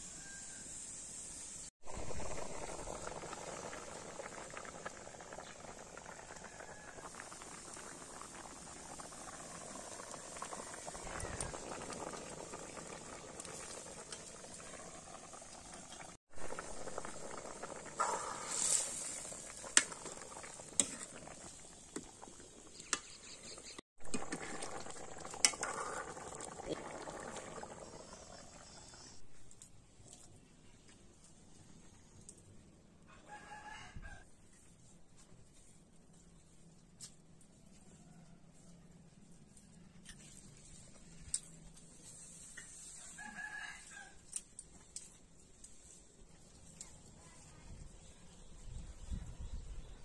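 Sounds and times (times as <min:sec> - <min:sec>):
curry bubbling in a pan: 0:01.8 - 0:29.2.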